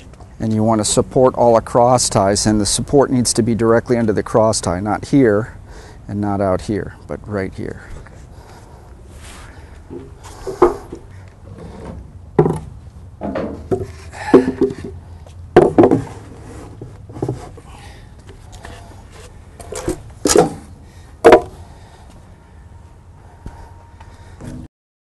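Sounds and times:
wooden boxes knocking on concrete: 12.4s - 16.2s, 21.2s - 21.6s.

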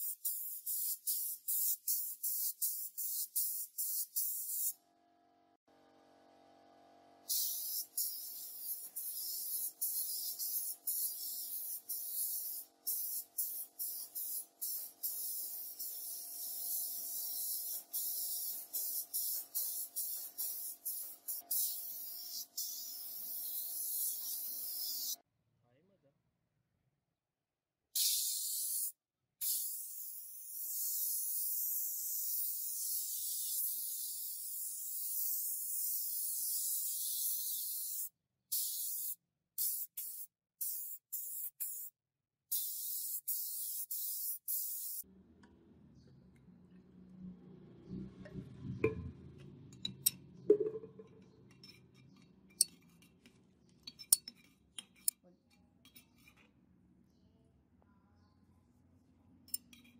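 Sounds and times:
paint spray gun hissing: 0.0s - 4.7s, 7.3s - 25.2s, 28.0s - 41.9s, 42.6s - 45.0s.

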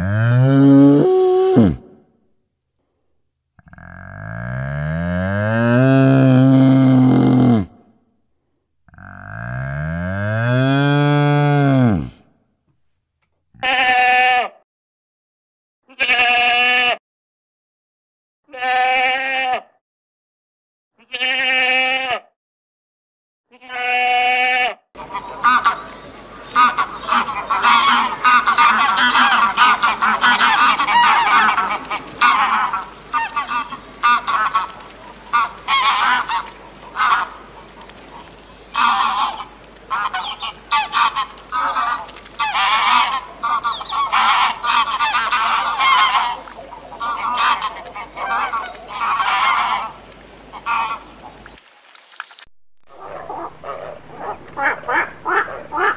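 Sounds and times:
sheep bleating: 13.6s - 14.6s, 15.9s - 17.0s, 18.5s - 19.7s, 21.0s - 22.3s, 23.5s - 24.8s
waterfowl honking: 25.0s - 51.4s, 53.0s - 55.9s.

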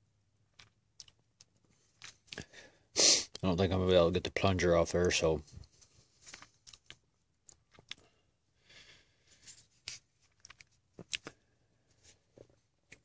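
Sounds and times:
soft rustle: 5.0s - 6.9s, 9.2s - 12.7s
faint clicks and light scrapes: 5.0s - 8.1s, 9.3s - 13.0s.

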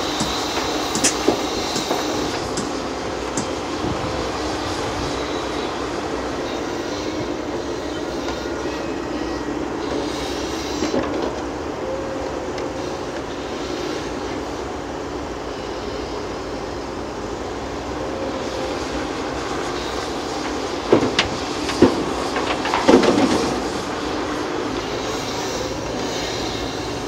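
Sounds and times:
excavator engine and hydraulics: 0.0s - 27.0s.

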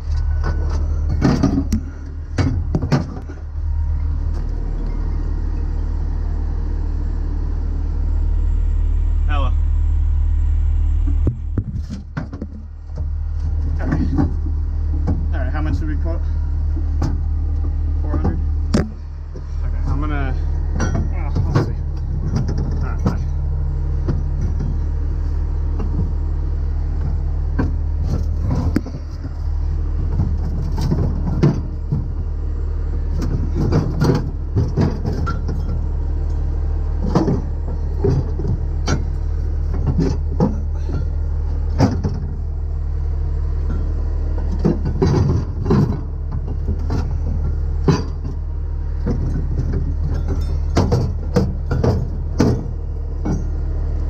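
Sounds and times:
truck engine idling: 0.0s - 54.0s
metallic clanks of chains: 50.0s - 50.8s.

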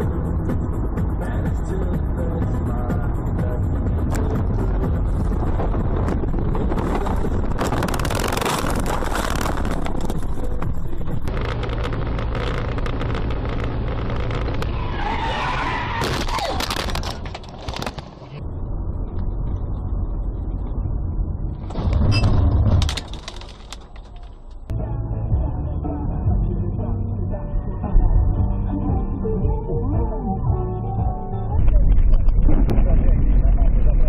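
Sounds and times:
car road and engine noise: 0.0s - 34.0s
tyres skidding and squealing: 6.7s - 18.4s, 21.5s - 24.7s.

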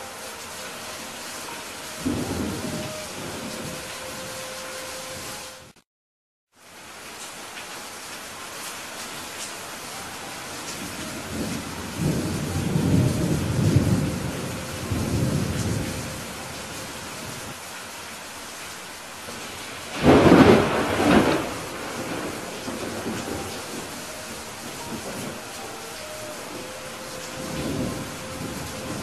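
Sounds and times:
steady rain: 0.0s - 5.8s, 6.5s - 29.0s
rolling thunder rumble: 2.0s - 4.4s, 10.8s - 17.6s, 19.3s - 29.0s
sharp thunderclap: 19.9s - 24.0s.

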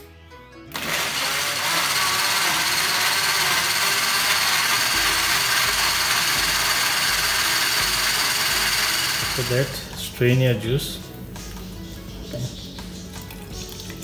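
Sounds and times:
blender running: 0.7s - 9.9s.

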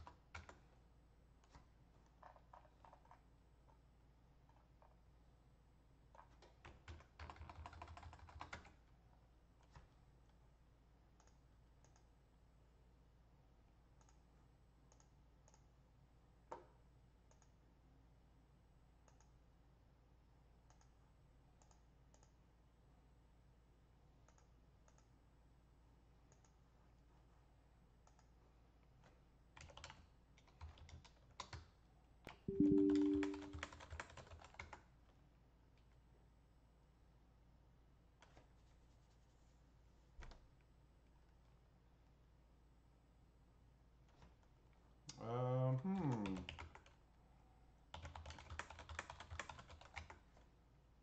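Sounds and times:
keyboard and mouse clicks: 1.4s - 3.2s, 11.2s - 12.1s, 28.0s - 28.4s, 32.3s - 34.8s
low two-note tone: 32.5s - 33.6s.

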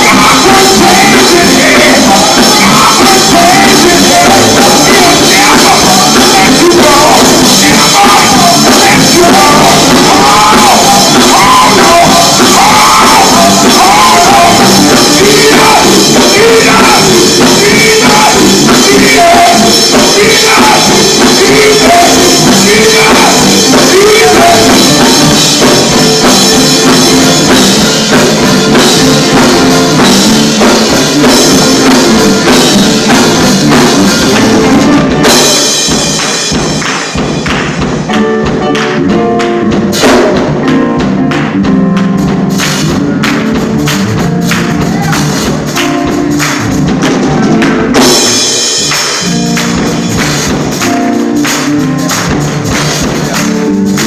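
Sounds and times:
gospel group singing: 0.0s - 37.7s
band with drums and guitar: 0.0s - 54.0s.

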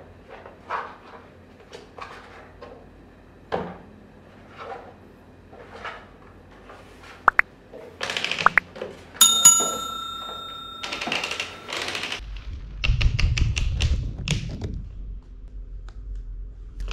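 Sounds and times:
bright bell ding: 9.2s - 12.0s.

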